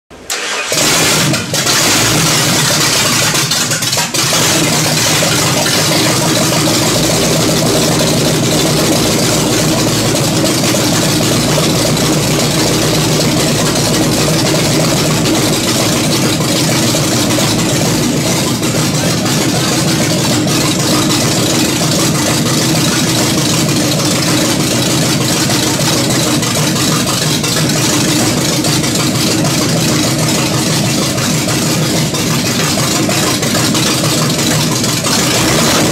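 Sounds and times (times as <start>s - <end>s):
pickup engine idling: 0.1s - 35.9s.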